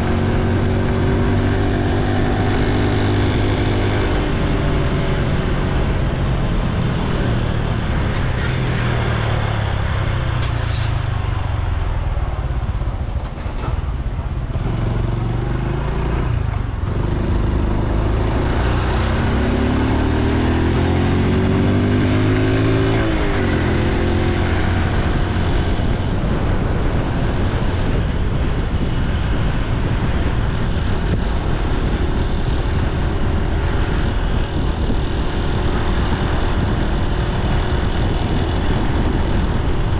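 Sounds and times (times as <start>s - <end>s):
motorcycle engine running: 11.4s - 39.9s.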